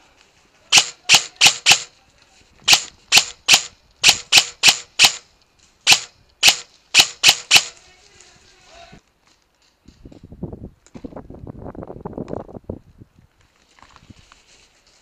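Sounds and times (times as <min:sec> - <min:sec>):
airsoft rifle firing single shots: 0:00.7 - 0:01.9, 0:02.7 - 0:05.2, 0:05.8 - 0:07.8.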